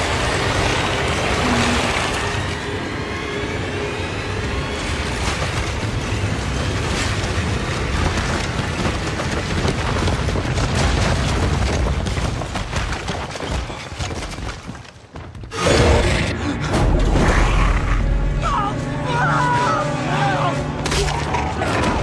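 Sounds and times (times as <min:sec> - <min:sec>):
rumbling crash of bodies: 0:05.0 - 0:15.5.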